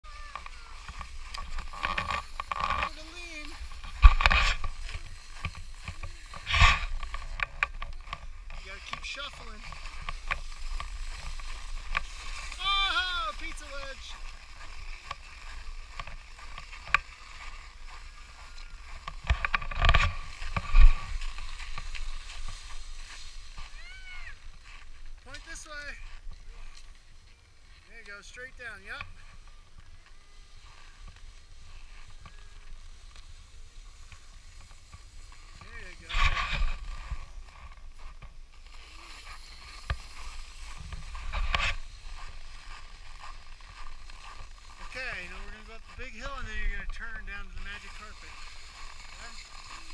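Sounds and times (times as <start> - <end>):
skis sliding over packed snow: 0.1 - 49.9
wind rumbling on microphone: 39.3 - 49.9.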